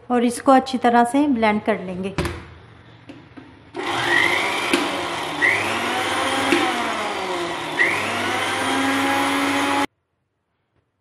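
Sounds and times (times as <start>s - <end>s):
blender motor whirring: 3.8s - 9.9s.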